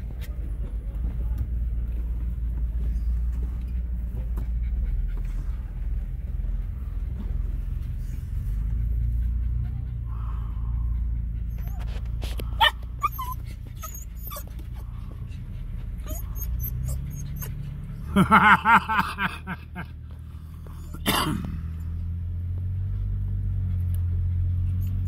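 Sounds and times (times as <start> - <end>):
vehicle engine running: 0.0 - 25.0
dog whining and yipping: 11.4 - 14.8, 16.0 - 17.6, 24.7 - 25.0.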